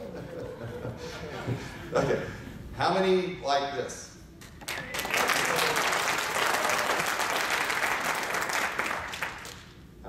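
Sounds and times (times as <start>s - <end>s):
audience applauding: 4.6s - 9.7s.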